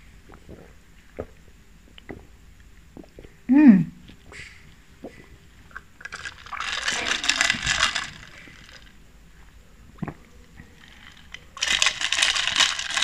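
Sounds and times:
ice cubes clinking in glass: 0:06.1 - 0:08.9, 0:10.8 - 0:13.0
slurping through a straw: 0:06.1 - 0:08.9.

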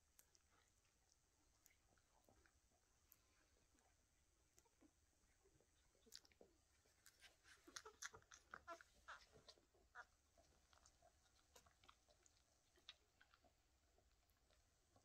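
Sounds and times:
puppies suckling wet smacks: 0:06.0 - 0:15.0.

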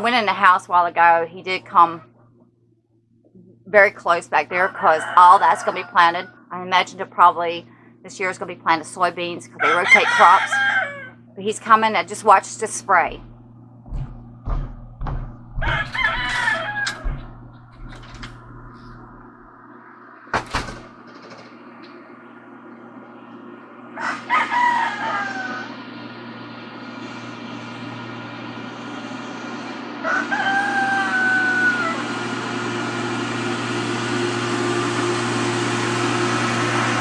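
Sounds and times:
tractor engine droning: 0:00.0 - 0:02.6, 0:03.2 - 0:37.0
rooster crowing: 0:04.6 - 0:06.4, 0:09.6 - 0:11.2, 0:14.0 - 0:19.6, 0:23.9 - 0:26.0, 0:30.0 - 0:32.4.

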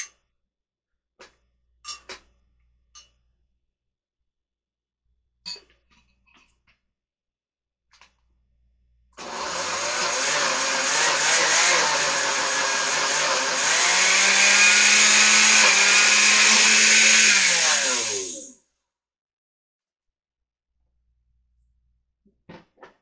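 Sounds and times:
blender motor running: 0:09.2 - 0:18.6.

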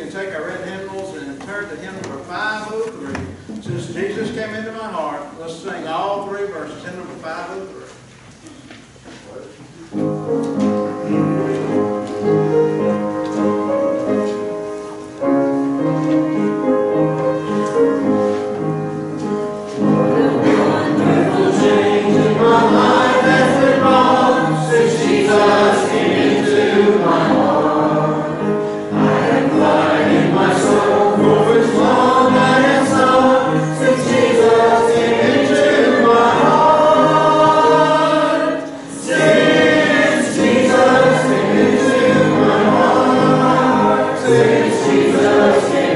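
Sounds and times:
instrumental accompaniment: 0:09.6 - 0:45.9
congregation singing a hymn: 0:09.9 - 0:45.9.

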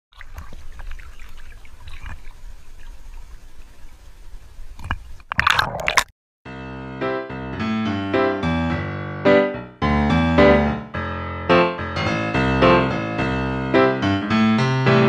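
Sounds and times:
small splashes: 0:00.1 - 0:04.1
underwater splashing and bubbling: 0:00.1 - 0:06.1
water sloshing and lapping: 0:00.1 - 0:06.1
piano music: 0:06.5 - 0:15.0.

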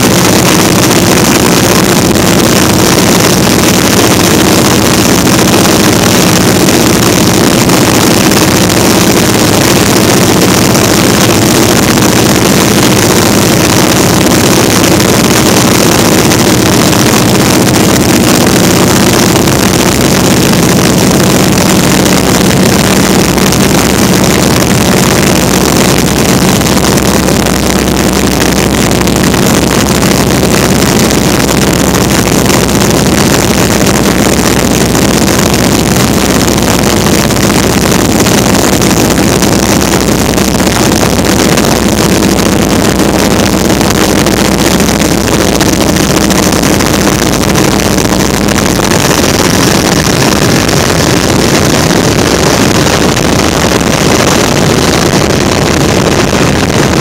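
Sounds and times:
propeller engine droning: 0:00.0 - 0:57.0
wind rush on microphone: 0:00.0 - 0:57.0.

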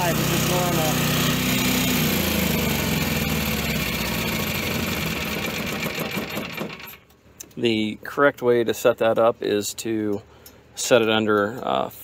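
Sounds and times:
engine spinning down: 0:00.0 - 0:07.0
generator running: 0:00.0 - 0:07.2.

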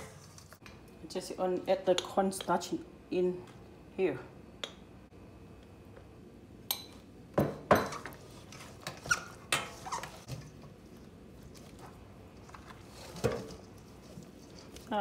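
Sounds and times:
soft mixing: 0:07.9 - 0:15.0.

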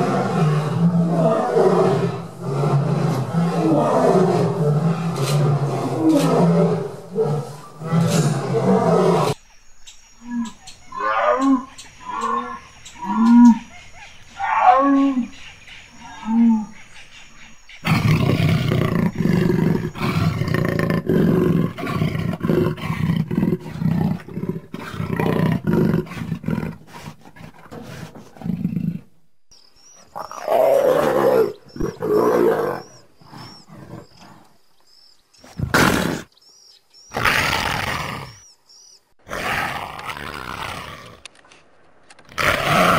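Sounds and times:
jaguar calls: 0:29.7 - 0:41.2
leopard calls: 0:29.8 - 0:41.2.

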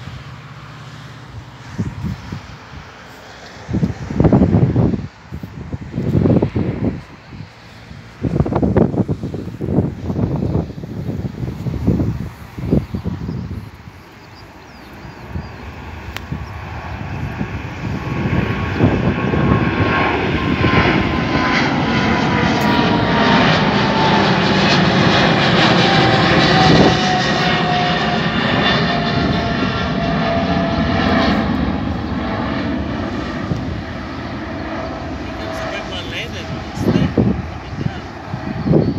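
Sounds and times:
jet engines low rumble: 0:00.0 - 0:38.9.

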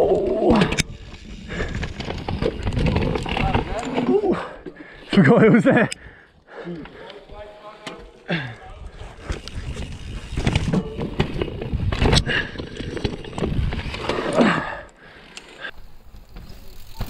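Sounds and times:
mountain bike rattling on trail: 0:00.0 - 0:05.9, 0:06.9 - 0:17.0.

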